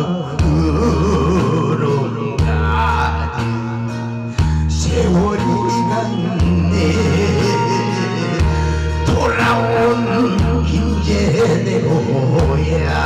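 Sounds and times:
amplified accompaniment with bass line: 0.0 - 13.0
man singing into a microphone: 0.0 - 13.0.

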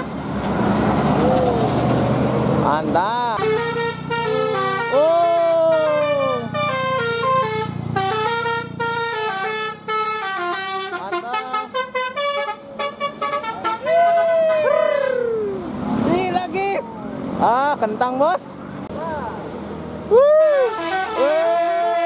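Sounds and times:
bus musical horn playing tune: 0.0 - 0.2, 3.4 - 14.4, 20.6 - 22.0.

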